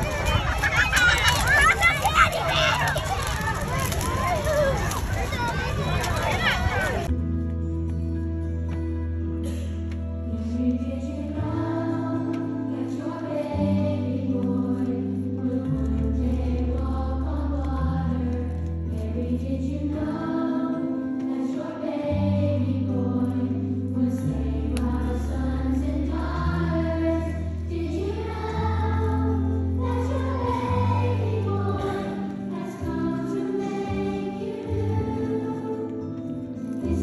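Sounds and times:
children's choir singing: 0:10.4 - 0:37.0.

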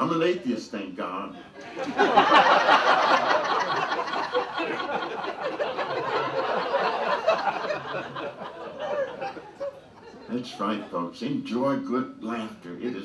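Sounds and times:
audience laughing: 0:01.6 - 0:11.0.

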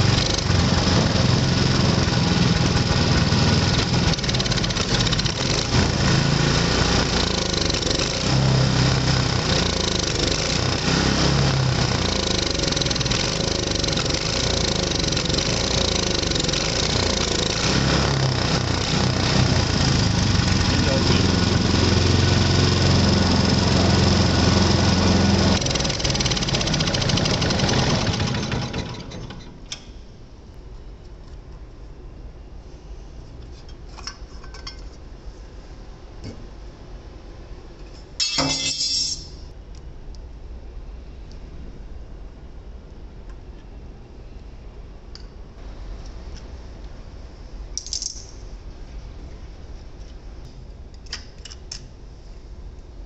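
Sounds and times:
small petrol engine running: 0:00.0 - 0:29.5
clinking rattle: 0:38.2 - 0:39.4, 0:47.8 - 0:48.5.

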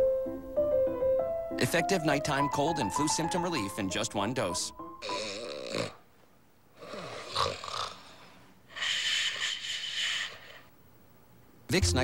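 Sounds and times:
man snoring: 0:05.0 - 0:06.0, 0:06.8 - 0:10.7.

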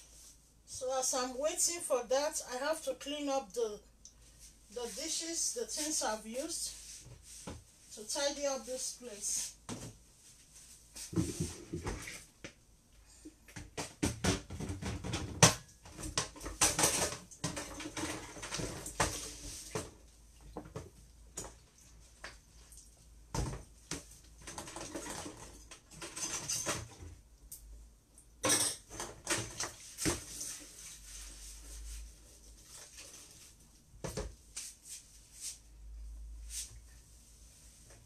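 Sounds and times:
clatter of dishes and utensils: 0:14.5 - 0:19.3, 0:24.4 - 0:27.1, 0:28.4 - 0:29.8.

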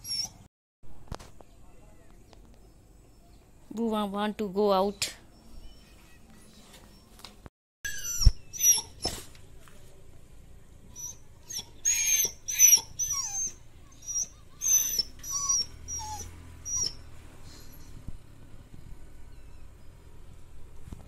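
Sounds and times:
dog whining: 0:00.0 - 0:00.5, 0:07.9 - 0:09.3, 0:10.9 - 0:18.0.

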